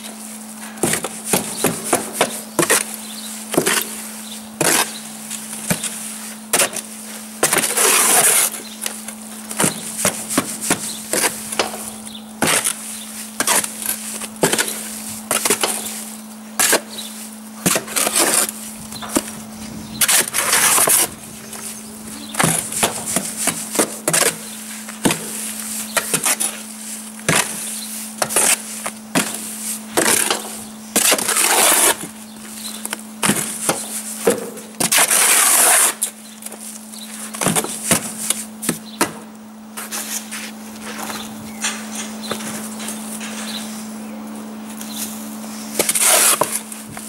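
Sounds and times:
shovel scraping wet cement: 0.1s - 39.2s, 39.8s - 43.9s, 44.8s - 47.0s
shovel knocking wheelbarrow sides: 9.5s - 12.8s.

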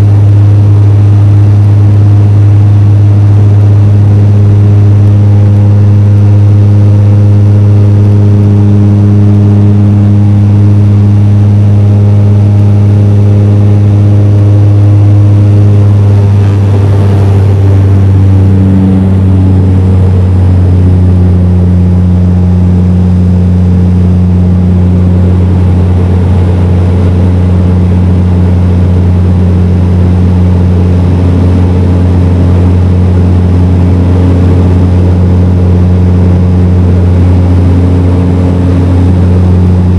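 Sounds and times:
turboprop engine drone: 0.0s - 39.9s.

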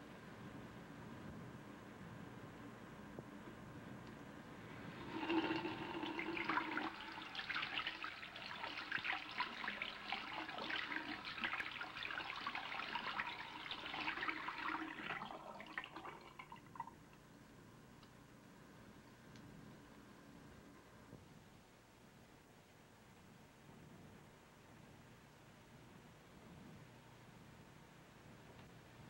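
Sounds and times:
water running from a tap into sink: 5.0s - 16.6s.

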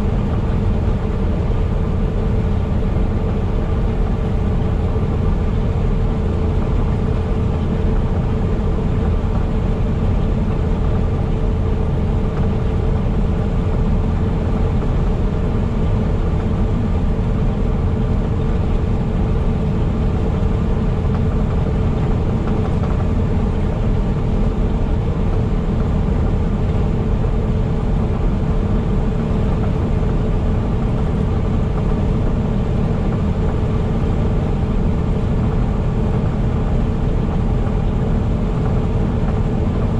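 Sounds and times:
truck engine and road noise: 0.0s - 39.9s.

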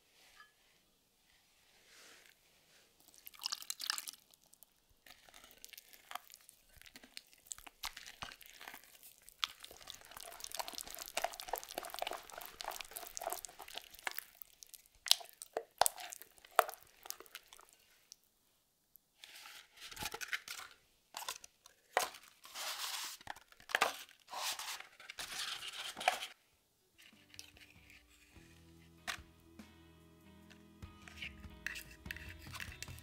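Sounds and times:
spoon stirring wet batter: 3.0s - 18.2s, 30.8s - 33.0s.

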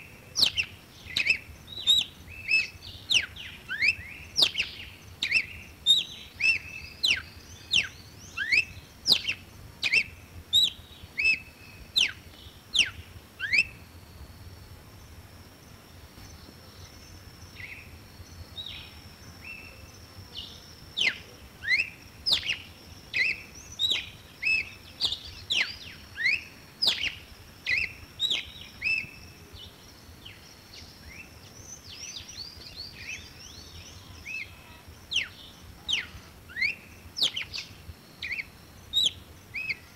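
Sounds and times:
bird singing whistled notes: 0.0s - 39.9s.

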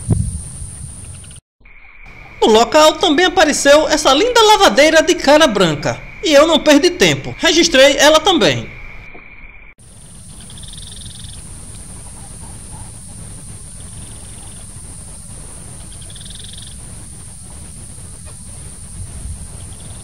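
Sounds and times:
small animal pulsed trill: 8.6s - 20.0s
low rumble: 9.8s - 20.0s.

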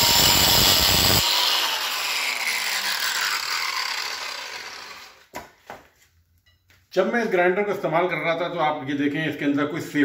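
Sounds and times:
angle grinder grinding steel: 0.0s - 5.3s.

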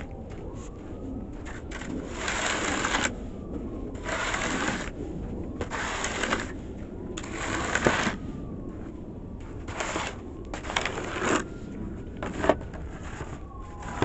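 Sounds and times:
snow shovel scraping through snow: 1.5s - 3.1s, 4.0s - 4.9s, 5.6s - 6.6s, 7.2s - 8.2s, 9.7s - 11.4s.

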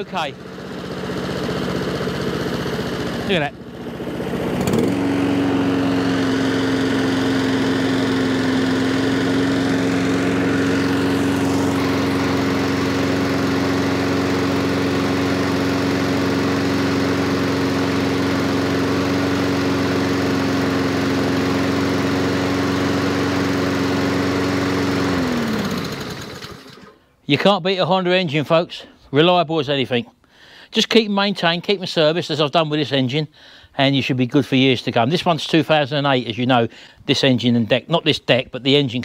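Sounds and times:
lawn mower engine running: 0.0s - 27.1s.

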